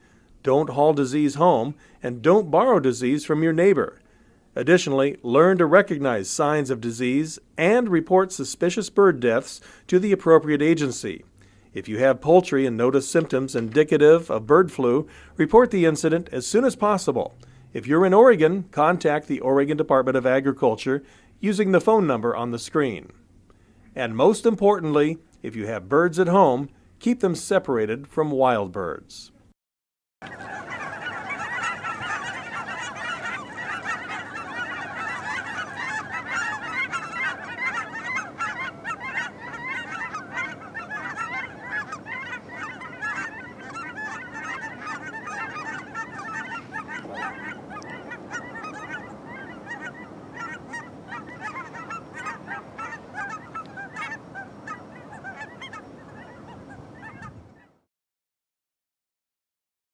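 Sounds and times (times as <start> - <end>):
flock of geese honking: 0.0 - 4.0, 11.9 - 20.5, 30.2 - 57.7.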